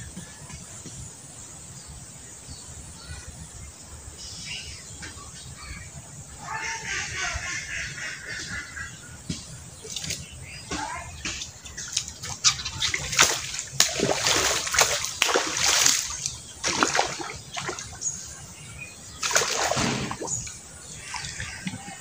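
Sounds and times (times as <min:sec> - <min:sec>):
fish splashing at water surface: 0:11.8 - 0:18.1, 0:19.1 - 0:21.8.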